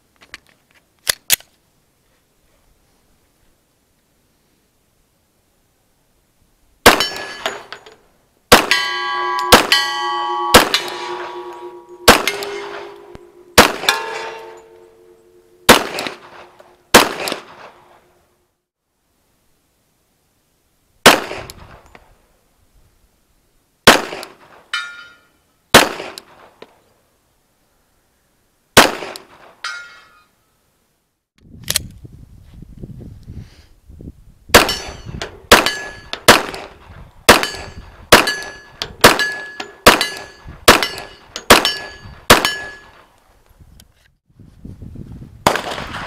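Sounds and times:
pistol shots: 0:06.8 - 0:07.7, 0:08.5 - 0:14.6, 0:15.7 - 0:17.8, 0:21.0 - 0:21.6, 0:23.9 - 0:24.5, 0:25.7 - 0:26.3, 0:28.8 - 0:29.5, 0:34.5 - 0:42.9, 0:45.5 - 0:46.0
steel target ringing: 0:06.9 - 0:07.7, 0:08.5 - 0:16.0, 0:37.4 - 0:43.0.

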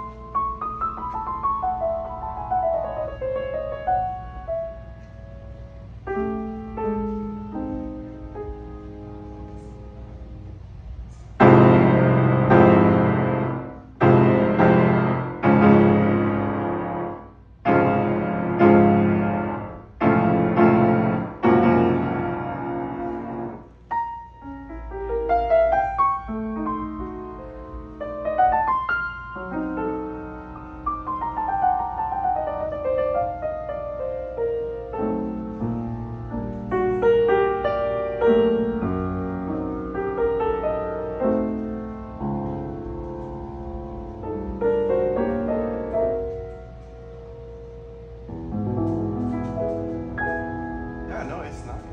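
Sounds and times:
grand piano playing: 0:00.0 - 0:51.9.

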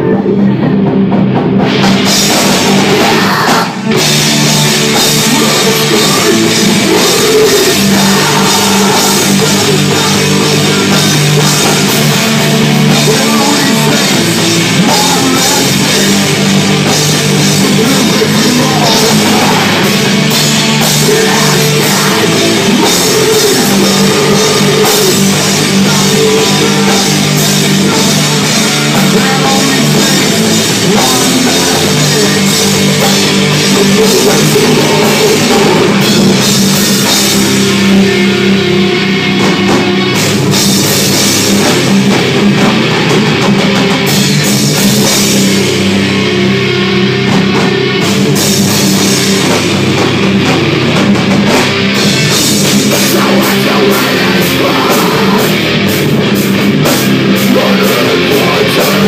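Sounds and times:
drum kit beat: 0:00.0 - 0:59.0
electric guitars: 0:00.0 - 0:59.0.

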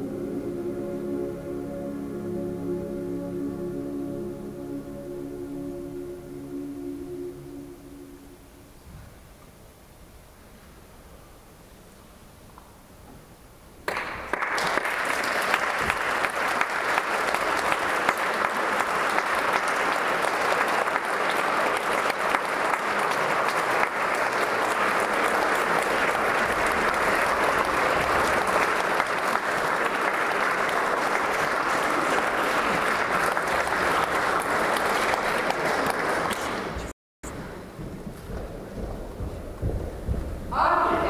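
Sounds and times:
audience applauding: 0:13.9 - 0:36.9.

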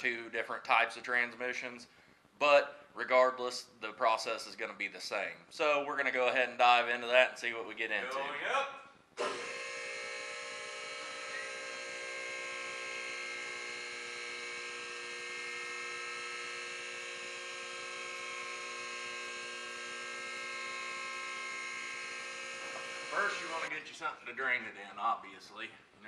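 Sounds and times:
hydraulic pump motor humming: 0:09.2 - 0:23.7.

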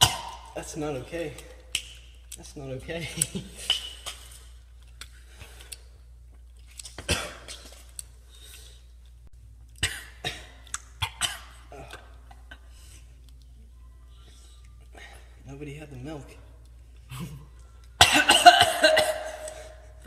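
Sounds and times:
people coughing: 0:07.0 - 0:07.7, 0:09.8 - 0:12.8, 0:17.1 - 0:19.9.

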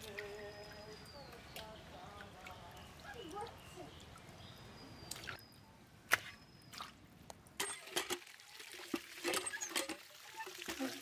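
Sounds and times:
water splashing: 0:00.0 - 0:04.4, 0:07.7 - 0:11.0.

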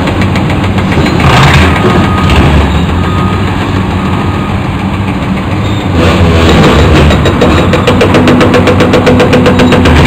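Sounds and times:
excavator diesel engines: 0:00.0 - 0:10.0
rapid even clatter: 0:06.1 - 0:10.0.

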